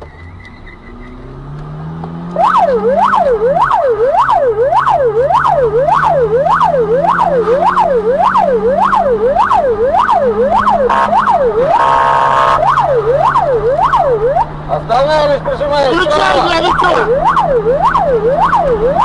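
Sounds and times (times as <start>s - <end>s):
vehicle engine running: 0.0s - 19.0s
siren yelping: 2.2s - 19.0s
harsh steady horn tone: 10.5s - 13.0s.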